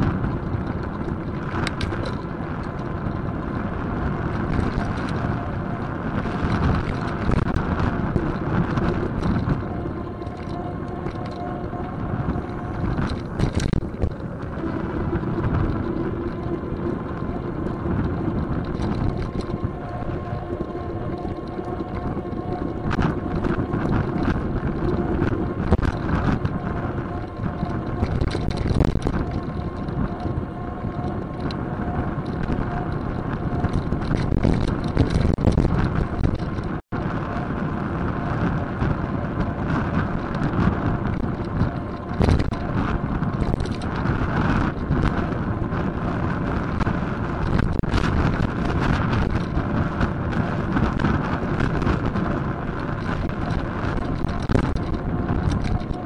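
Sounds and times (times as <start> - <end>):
tyres rumbling on road: 0.0 - 56.0
wind buffeting microphone: 0.0 - 56.0
small knocks and rattles: 6.2 - 31.6, 32.2 - 36.8, 40.2 - 45.2, 46.6 - 56.0.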